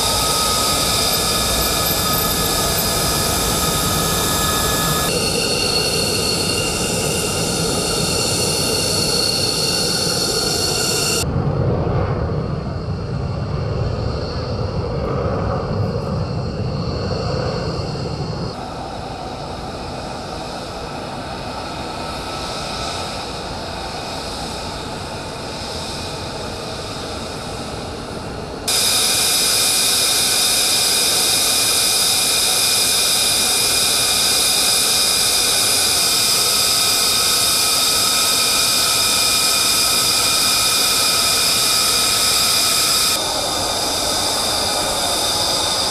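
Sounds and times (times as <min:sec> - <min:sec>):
jet engine rush and whine: 0:00.0 - 0:45.9
jet rumble in flight: 0:00.0 - 0:45.9
taxiing jet whine: 0:00.0 - 0:45.9.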